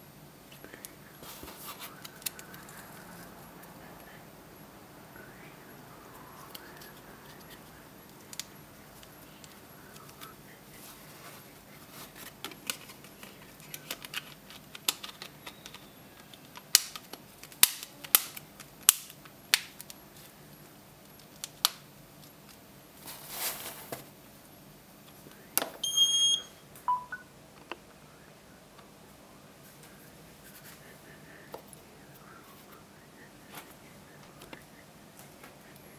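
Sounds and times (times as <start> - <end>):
short electronic beep: 25.8 - 27.3.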